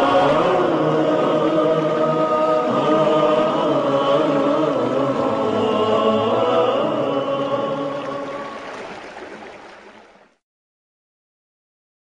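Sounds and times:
vocal chorus singing held notes: 0.0s - 8.7s.

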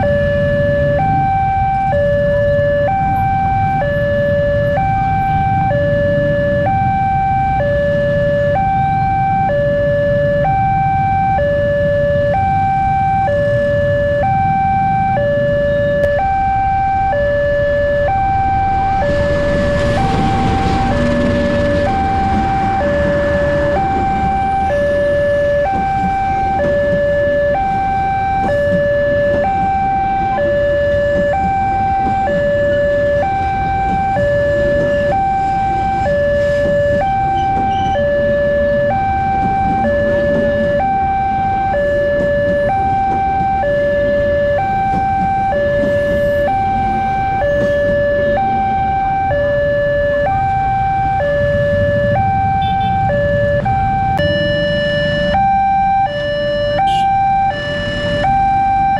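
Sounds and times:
two-tone crossing alarm: 0.0s - 58.9s
passing train rumbling: 16.2s - 54.2s.

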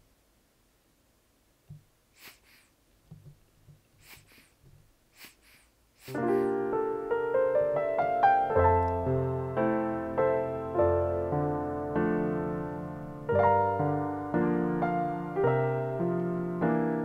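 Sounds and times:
soft taps and brushing: 1.6s - 2.0s, 2.9s - 5.4s
piano piece: 6.1s - 17.0s.

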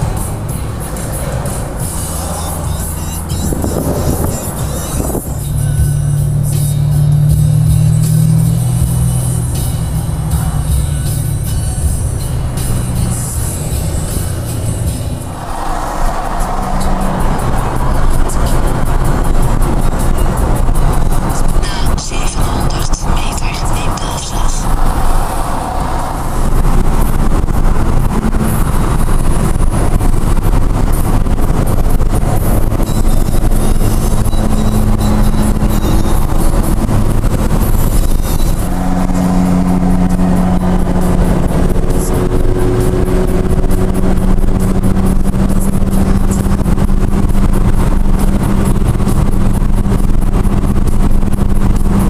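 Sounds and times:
car engine drone: 0.0s - 52.0s
road and tyre rumble: 0.0s - 52.0s
wind noise: 3.3s - 5.4s, 24.6s - 52.0s.

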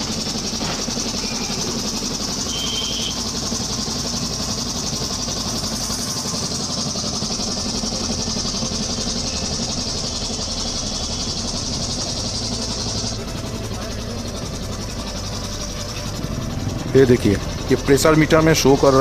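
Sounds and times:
belt-driven air compressor running: 0.0s - 19.0s.

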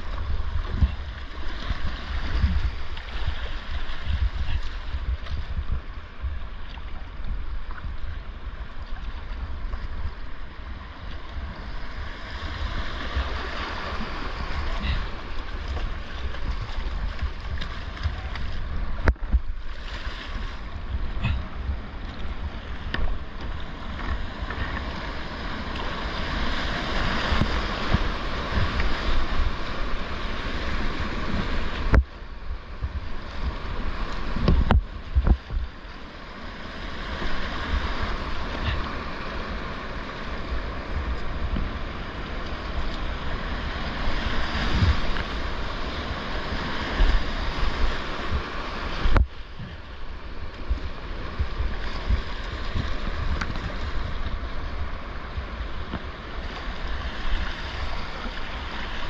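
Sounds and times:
wind rumble on microphone: 0.0s - 59.0s
whitewater rushing over rocks: 11.2s - 36.0s, 36.8s - 59.0s.

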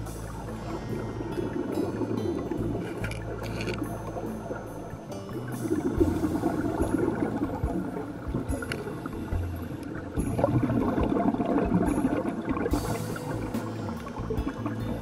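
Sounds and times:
underwater breath bubbling: 0.0s - 4.7s
steady crackle: 0.0s - 5.0s.

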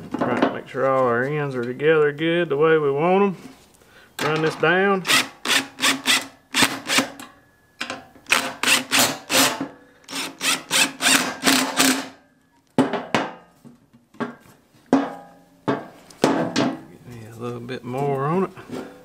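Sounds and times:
impact driver hammering: 8.3s - 12.2s.

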